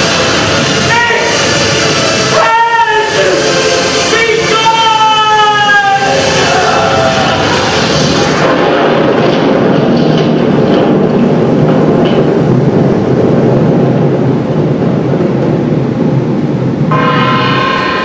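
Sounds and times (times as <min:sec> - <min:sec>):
music: 0:00.0 - 0:13.1, 0:16.8 - 0:18.0
loud steady rumbling: 0:00.0 - 0:18.0.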